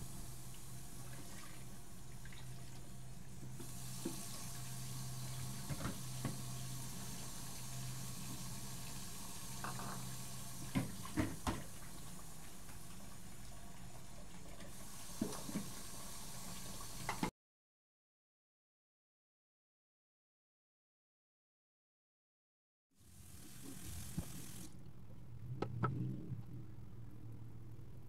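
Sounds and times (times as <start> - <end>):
tap running into a sink: 3.6 - 4.4, 5.6 - 6.5, 9.6 - 11.8, 14.6 - 15.8, 17.0 - 17.3
low hum: 24.7 - 28.0.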